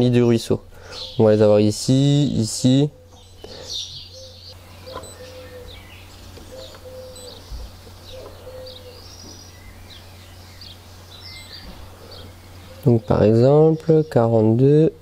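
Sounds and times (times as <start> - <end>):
steady low hum: 0.0 - 15.0
birds chirping and whistling: 0.8 - 15.0
low cooing: 2.9 - 9.6, 11.4 - 13.4.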